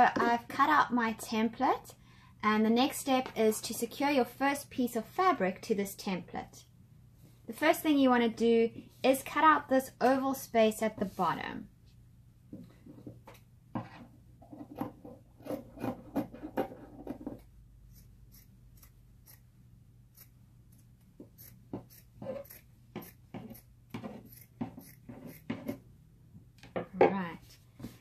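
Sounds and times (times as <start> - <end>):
scissors snipping fabric: 17.9 - 19.5, 20.1 - 25.8.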